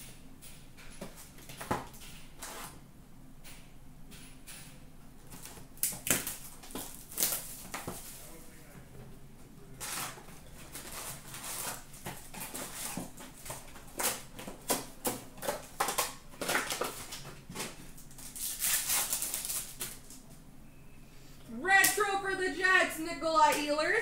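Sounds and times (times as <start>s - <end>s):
foil wrapper crinkling and tearing: 5.4s - 8.1s, 9.8s - 20.2s.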